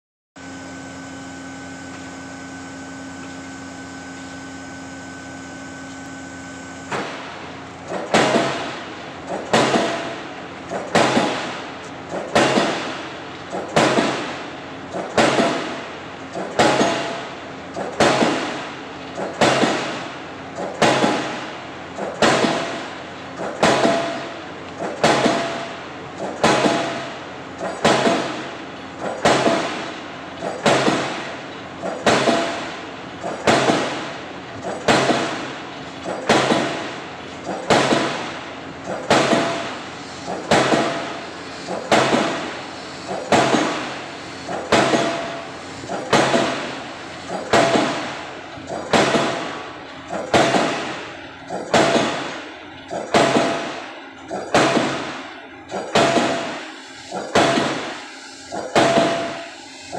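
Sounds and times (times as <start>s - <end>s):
pile hammer blows ringing: 16.6s - 17.3s, 23.6s - 24.4s, 43.2s - 44.0s, 44.7s - 46.7s, 47.4s - 48.2s, 51.6s - 55.2s, 55.8s - 56.7s, 57.3s - 58.1s, 58.7s - 59.6s.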